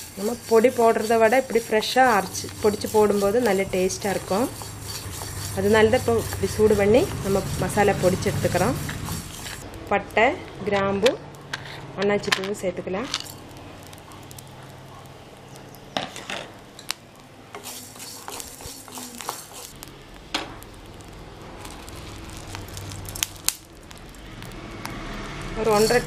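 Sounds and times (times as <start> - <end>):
spatula scraping a pan: 0.0 - 9.6, 11.5 - 11.9, 17.6 - 19.8, 25.6 - 26.0
seeds rattling in a pan: 0.0 - 9.7, 13.0 - 15.8, 17.6 - 26.0
low sizzling hiss: 12.1 - 26.0.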